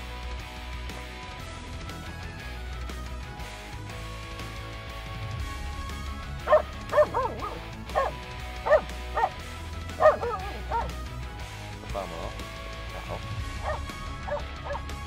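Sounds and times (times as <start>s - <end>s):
dog barking sharply: 6.5s - 9.4s, 10.0s - 11.0s, 12.9s - 14.8s.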